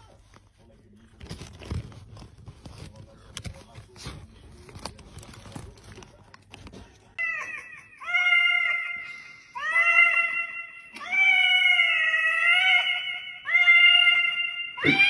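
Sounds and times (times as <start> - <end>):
cat meowing through toy microphone: 11.0 - 15.0.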